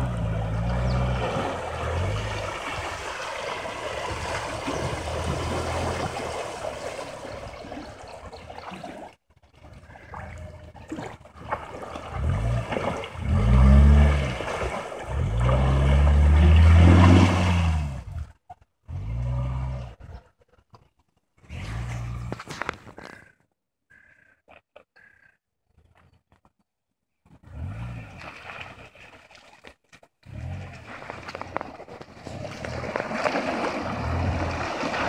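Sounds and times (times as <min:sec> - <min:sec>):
engine revving: 0:00.0 - 0:02.7, 0:12.1 - 0:18.2
water splashing around wheels: 0:00.0 - 0:20.1, 0:27.4 - 0:35.0.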